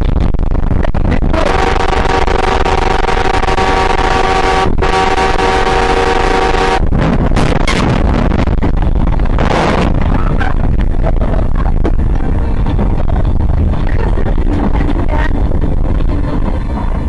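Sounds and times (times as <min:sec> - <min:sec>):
road noise: 0:00.0 - 0:17.0
wind noise: 0:00.0 - 0:17.0
vehicle horn long blast: 0:01.3 - 0:06.8.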